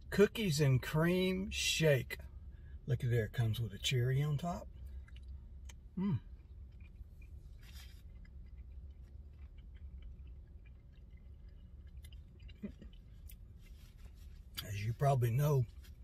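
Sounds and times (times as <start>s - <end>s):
steady low hum: 0.0s - 16.0s
quiet chewing: 4.6s - 16.0s.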